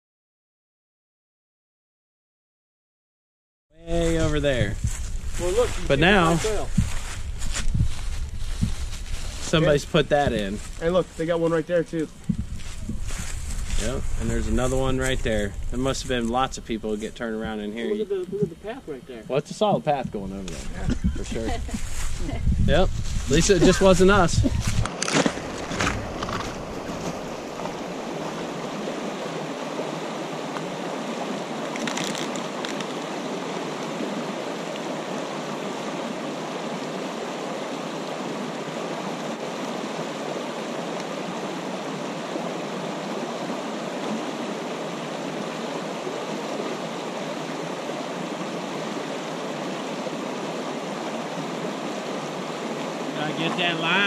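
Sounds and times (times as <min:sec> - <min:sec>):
river water flowing over rocks: 0:23.4 - 0:54.0.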